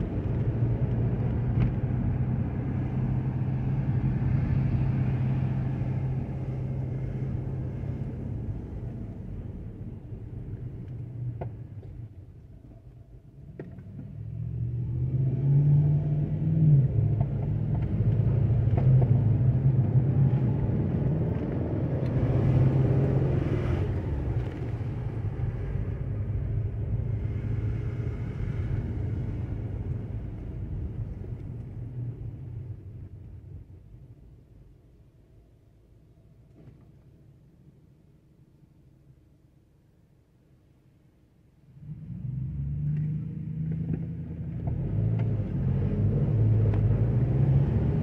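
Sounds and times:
car engine hum: 0:00.0 - 0:48.0
road noise: 0:00.0 - 0:48.0.

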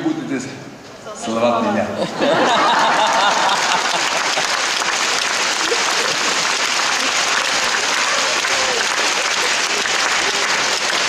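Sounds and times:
audience applauding: 0:02.3 - 0:11.0.

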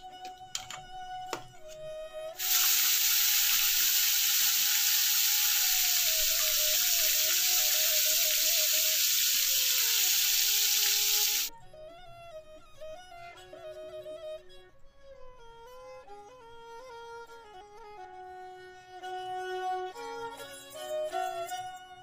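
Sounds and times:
background music with simple melody: 0:00.0 - 0:02.4
fish sizzling in oil: 0:02.4 - 0:11.5.

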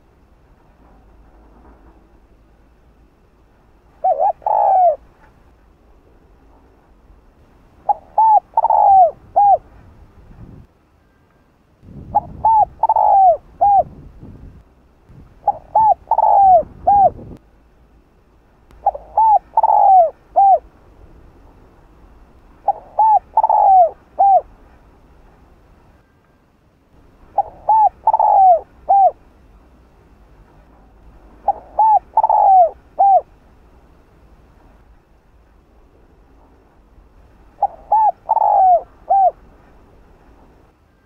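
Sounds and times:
dove cooing: 0:03.9 - 0:05.2, 0:07.8 - 0:09.8, 0:12.1 - 0:14.0, 0:15.4 - 0:17.4, 0:18.8 - 0:20.7, 0:22.6 - 0:24.5, 0:27.3 - 0:29.2, 0:31.4 - 0:33.3, 0:37.6 - 0:39.4.

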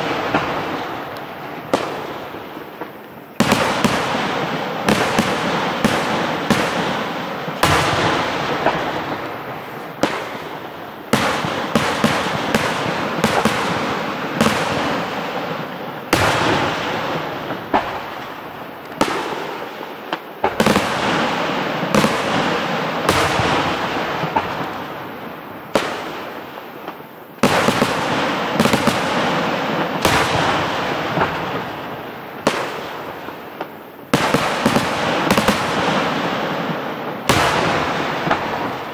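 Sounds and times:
heavy firework booms: 0:00.0 - 0:19.8, 0:20.4 - 0:26.4, 0:27.4 - 0:33.5, 0:34.1 - 0:38.9
firework crackling: 0:00.0 - 0:38.9.

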